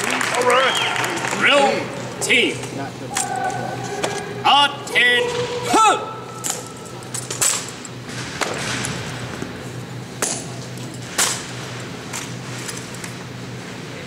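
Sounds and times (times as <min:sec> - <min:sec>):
large hall background noise: 0:00.0 - 0:14.0
rifles clacking: 0:06.3 - 0:07.9.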